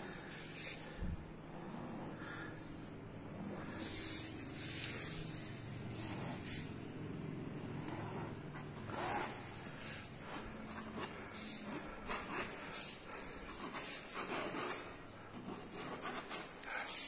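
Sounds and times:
low steady background hum: 0.0s - 17.0s
paintbrush scratching on canvas: 3.4s - 6.8s, 7.8s - 17.0s.

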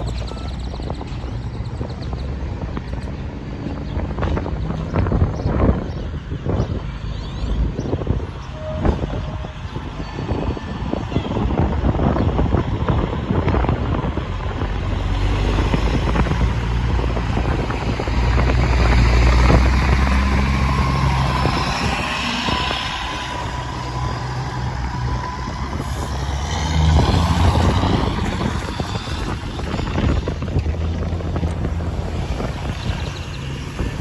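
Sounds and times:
vehicle engine: 0.0s - 34.0s
truck diesel engine passing: 8.5s - 34.0s.

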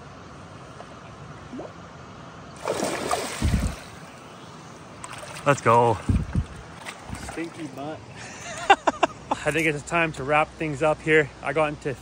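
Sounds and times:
river water flowing over gravel: 2.5s - 8.2s
water splashing and sloshing: 2.6s - 8.7s.

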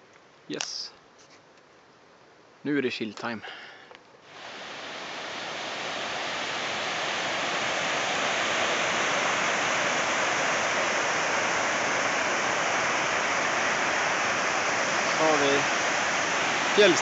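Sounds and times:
river rapids rushing over rocks: 4.4s - 17.0s.

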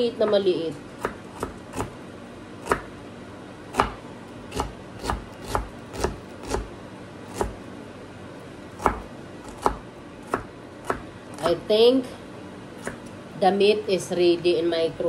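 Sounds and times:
knife chopping on cutting board: 1.0s - 2.0s, 2.6s - 2.9s, 3.7s - 6.7s, 7.3s - 7.6s, 8.8s - 11.5s, 12.8s - 13.1s.

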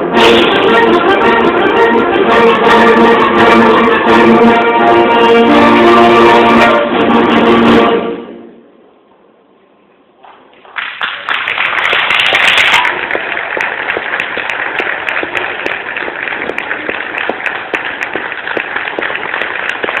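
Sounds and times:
audience applauding: 10.6s - 20.0s.

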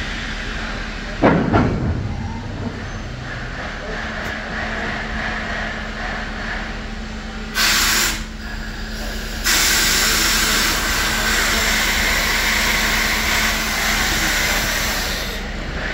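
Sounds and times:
locomotive low hum: 0.0s - 15.9s
loud hiss of steam: 7.5s - 15.6s.

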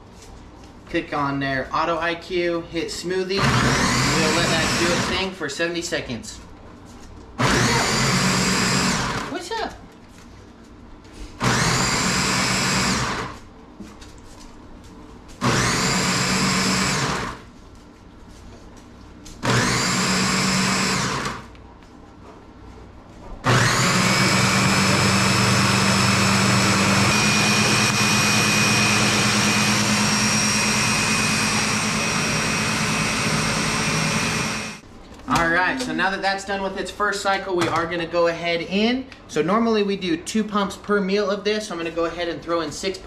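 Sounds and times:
blender crushing ice: 3.4s - 5.3s, 7.4s - 9.4s, 11.4s - 13.4s, 15.4s - 17.4s, 19.4s - 21.5s, 23.5s - 34.8s.

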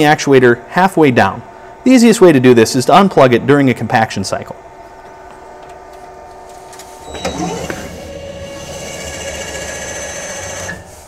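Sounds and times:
faint steady hum: 0.0s - 11.0s
trash compactor motor whining: 4.9s - 11.0s.

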